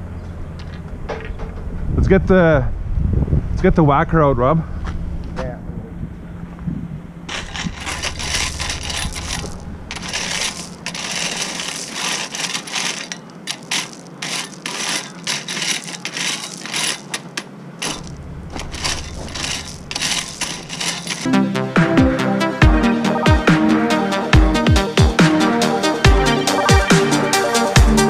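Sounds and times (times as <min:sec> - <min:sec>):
metal rake scraping gravel: 0:07.3 - 0:21.3.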